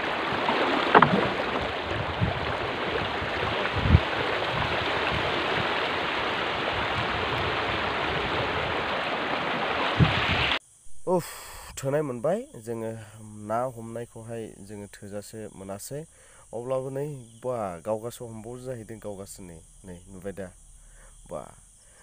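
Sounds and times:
low thumps: 0:00.0 - 0:05.8
river water rushing over stones: 0:00.0 - 0:10.6.

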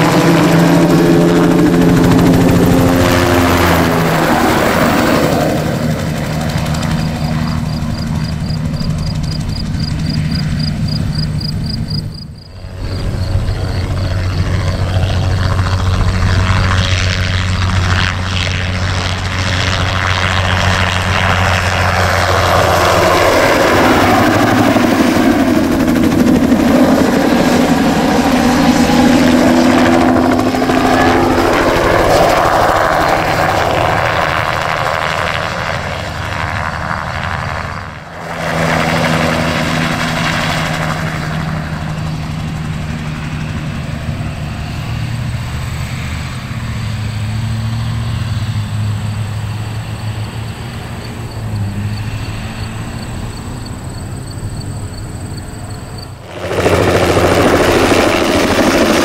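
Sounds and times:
helicopter rotor chop and turbine whine: 0:00.0 - 0:59.0.

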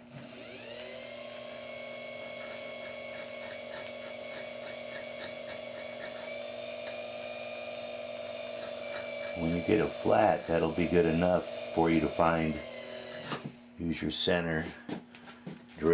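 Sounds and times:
lathe motor whining: 0:00.0 - 0:13.7
filing strokes on metal: 0:02.2 - 0:07.0, 0:08.4 - 0:12.0.

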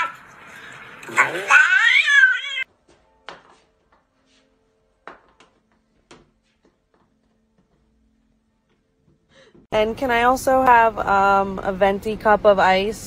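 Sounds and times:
cat yowling: 0:01.1 - 0:02.7.

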